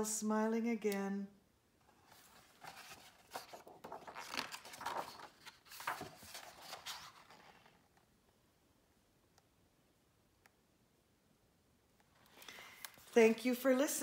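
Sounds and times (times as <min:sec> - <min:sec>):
book pages turning: 0:01.9 - 0:07.9.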